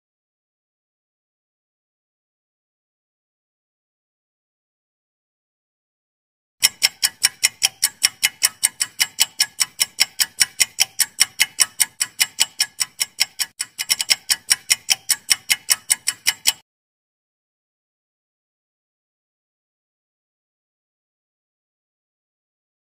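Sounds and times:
rapid clock ticking: 6.6s - 16.6s.

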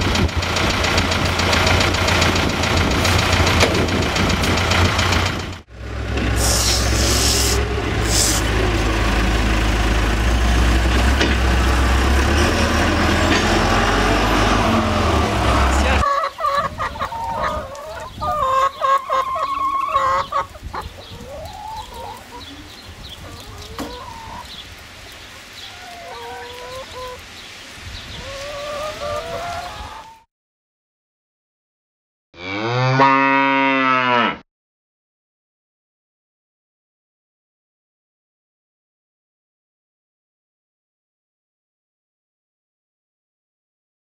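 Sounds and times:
diesel engine running: 0.0s - 16.0s
hens clucking: 10.8s - 30.2s.

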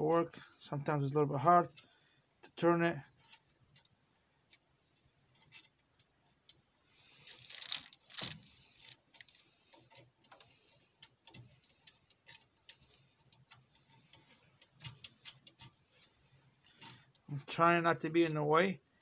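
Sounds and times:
rustling scrape: 6.9s - 9.0s.

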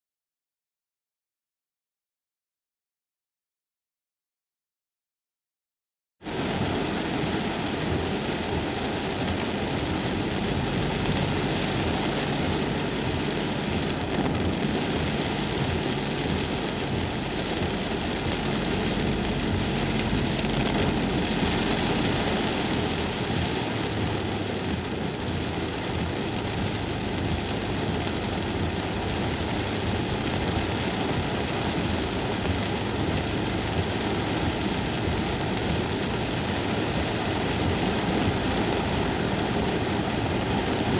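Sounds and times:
heavy rain on car roof: 6.2s - 40.9s
car engine and tyres: 6.4s - 40.9s.

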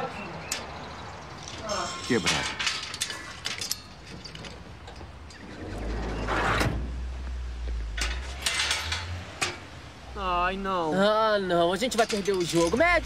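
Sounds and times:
metal gate clicking and rattling: 1.4s - 6.8s, 7.9s - 9.7s, 11.7s - 13.0s.

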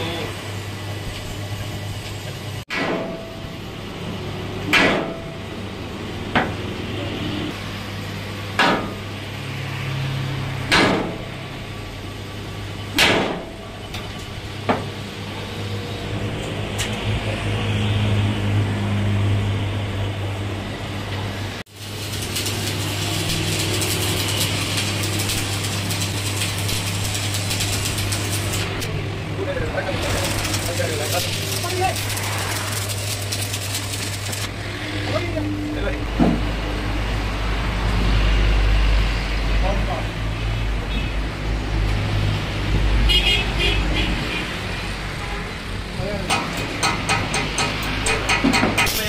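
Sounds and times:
arc welding crackle and hiss: 0.0s - 2.6s, 21.2s - 36.2s, 43.3s - 49.0s.

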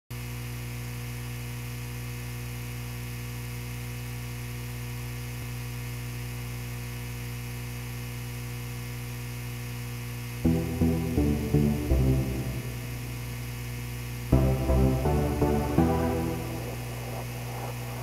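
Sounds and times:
electrical mains hum: 0.2s - 18.0s
faint hiss: 14.3s - 18.0s.

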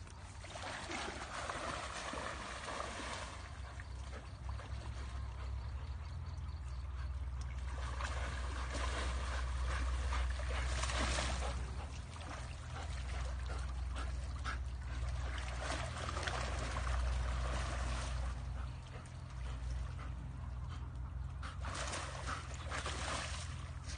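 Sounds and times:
water splashing and sloshing: 0.0s - 23.9s.

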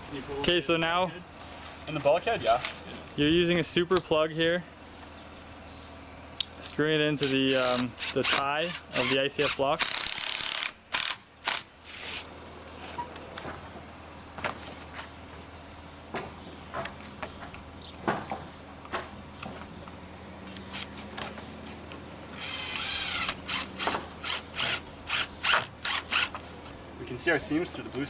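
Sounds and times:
cordless drill running: 22.4s - 26.4s.

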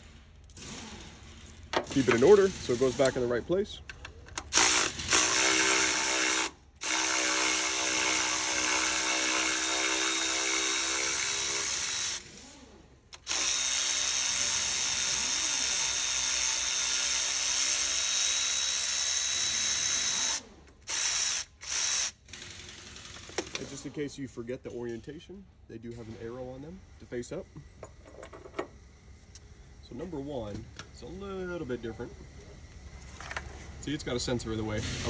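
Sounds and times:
electric ratchet running: 0.0s - 3.4s, 4.3s - 23.7s.

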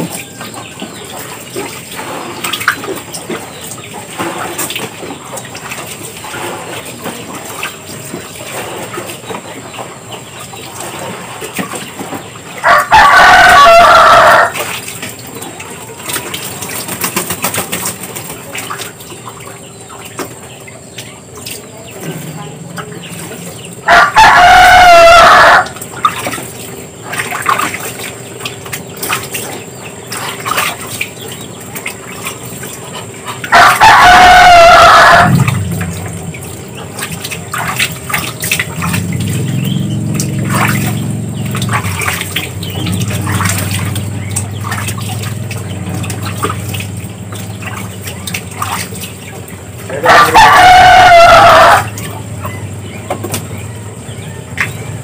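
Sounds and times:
water splashing in a basin: 0.0s - 55.0s
rooster crowing: 12.6s - 14.6s, 23.8s - 25.8s, 33.5s - 35.8s, 49.9s - 52.0s.

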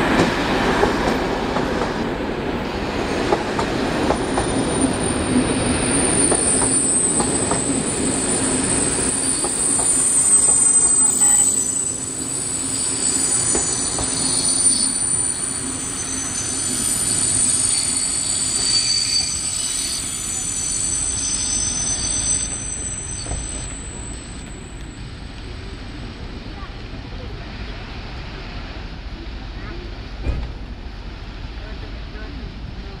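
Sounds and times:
train wheels clicking over rail joints: 3.2s - 4.6s, 6.1s - 7.8s, 9.1s - 10.2s
high brake squeal: 4.5s - 24.8s.

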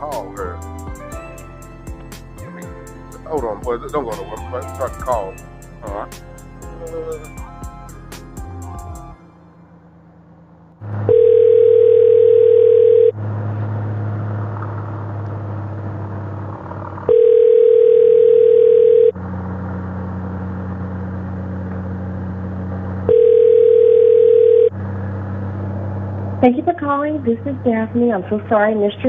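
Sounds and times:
motorcycle low hum: 0.0s - 29.0s
telephone ringback tone: 11.1s - 13.2s, 17.1s - 19.2s, 23.1s - 24.7s.

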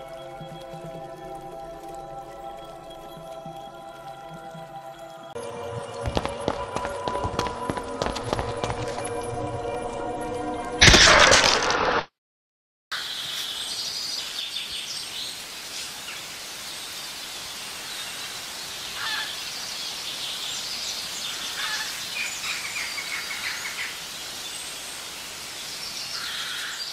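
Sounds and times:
constant hiss: 0.0s - 5.4s, 13.0s - 26.9s
birds chirping: 0.0s - 9.3s, 13.0s - 26.9s.

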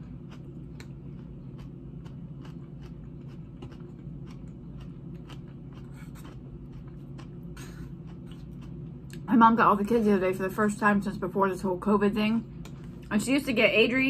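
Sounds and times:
chewing crunchy salad: 0.0s - 9.3s
steady low hum: 0.0s - 14.0s.

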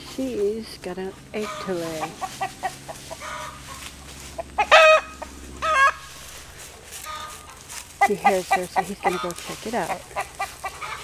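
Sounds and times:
hen clucking: 0.0s - 11.0s
loud short hen calls: 1.4s - 6.1s, 7.0s - 11.0s.

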